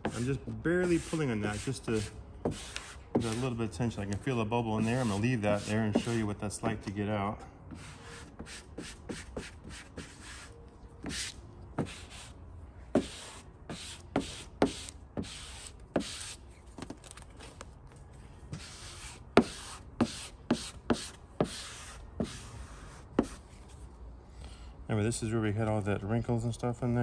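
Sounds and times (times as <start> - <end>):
squeegee scraping vinyl film: 0.0 - 6.3.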